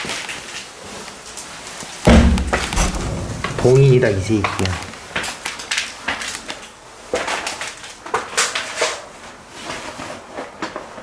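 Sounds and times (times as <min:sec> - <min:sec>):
crunching knocking and rustling: 0:02.1 - 0:05.4.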